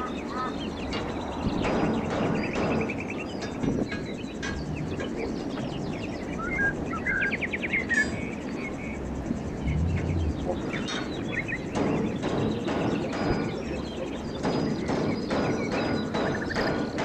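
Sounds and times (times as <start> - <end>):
small birds chirping: 0.0 - 16.8
low background noise: 4.3 - 15.0.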